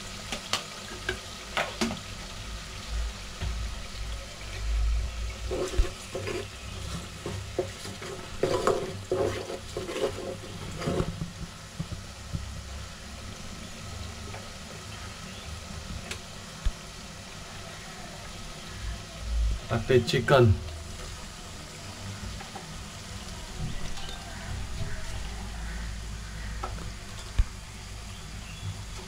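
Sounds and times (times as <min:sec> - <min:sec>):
onion sizzling in pot: 0:00.0 - 0:29.0
metal spoon scraping pot: 0:05.5 - 0:11.1.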